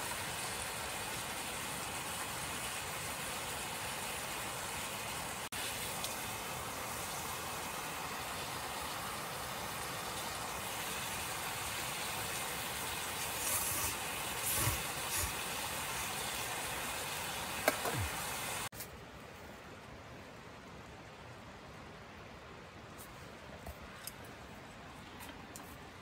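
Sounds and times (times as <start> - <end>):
gas camp stove hissing: 10.4 - 18.7.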